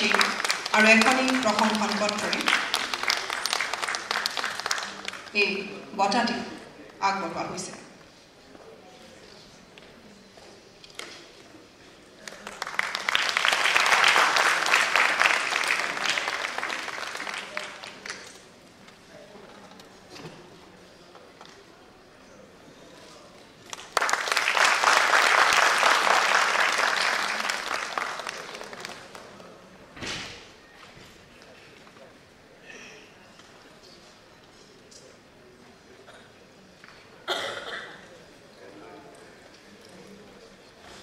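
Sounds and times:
audience applauding: 0.0 - 5.3, 12.2 - 18.4, 23.6 - 29.6.

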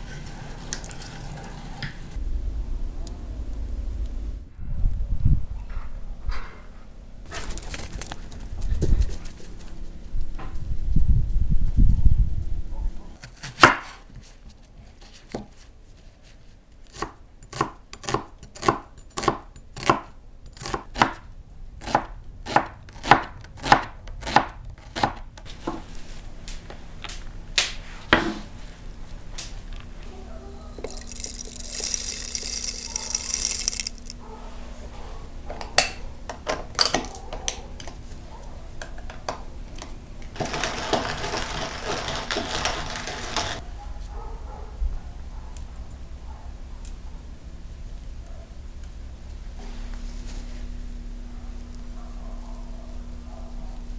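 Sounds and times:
knife chopping on wooden board: 16.9 - 21.2, 21.8 - 25.8
pepper mill grinding: 30.8 - 34.2, 40.4 - 43.6
knife scraping board: 40.4 - 43.6.

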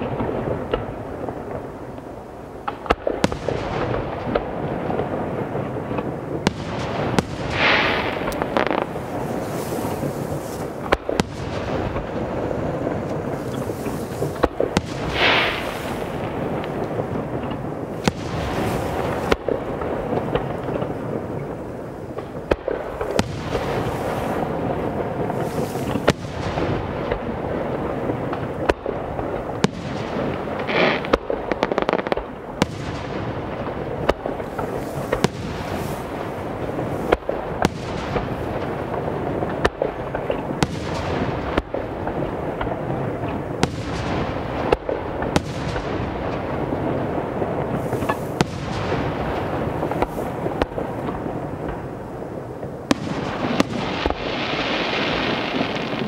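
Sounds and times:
rumble and crackle of fireworks: 0.0 - 56.0
firework shells bursting: 6.0 - 21.0.

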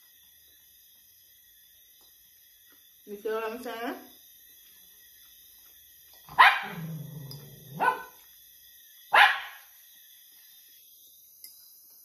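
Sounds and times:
dog barking: 6.3 - 7.1, 7.7 - 8.2, 9.1 - 9.6
dog growling: 6.6 - 8.1.

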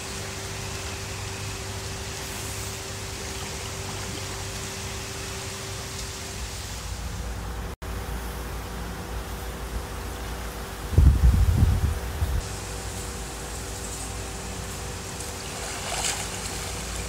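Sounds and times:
pool water washing: 0.0 - 10.9, 12.0 - 17.0
swimmer moving through water: 12.4 - 17.0.

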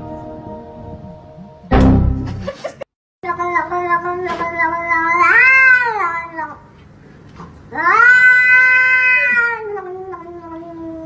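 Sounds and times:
cat yowling: 3.8 - 6.6, 7.7 - 11.0.

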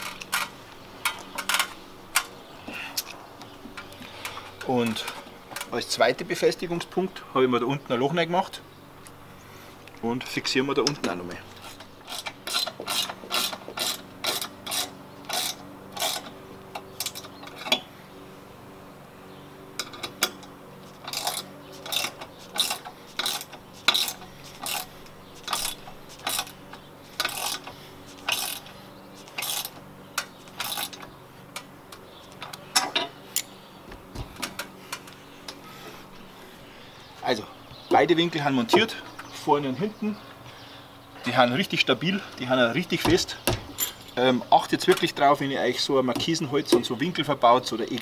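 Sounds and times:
ratchet wrench clicking: 11.6 - 17.8, 21.0 - 26.6, 27.2 - 28.7, 29.3 - 31.7.

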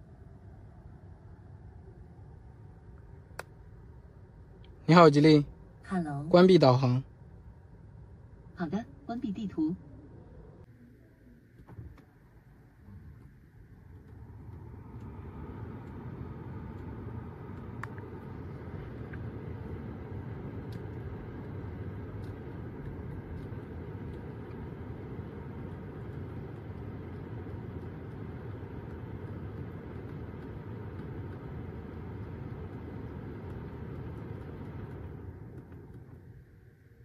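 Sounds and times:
car blower fan rushing air: 11.6 - 37.0.

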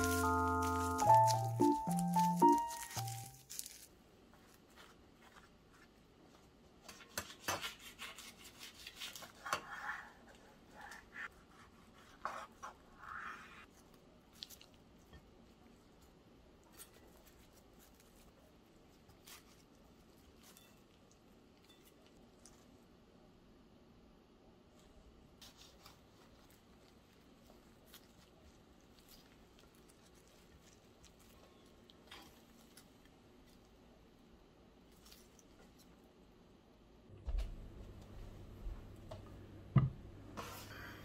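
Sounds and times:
rubbing or scraping noises: 0.0 - 13.9.

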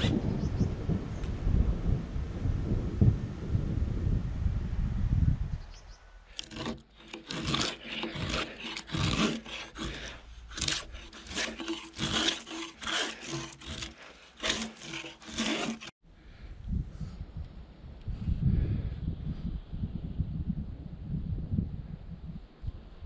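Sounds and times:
hand saw cutting wood: 6.4 - 16.0.

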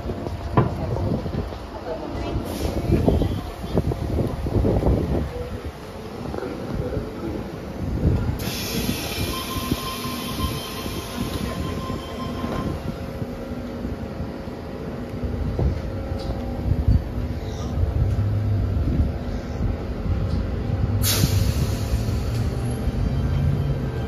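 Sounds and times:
train squealing and hissing: 2.4 - 3.8, 8.4 - 13.0, 21.0 - 24.0.

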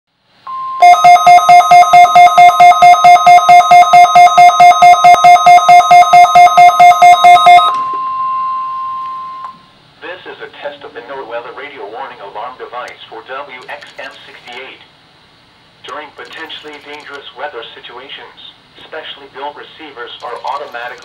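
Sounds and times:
steady alarm tone: 0.5 - 9.7
rapid electronic beeping: 0.8 - 7.8.

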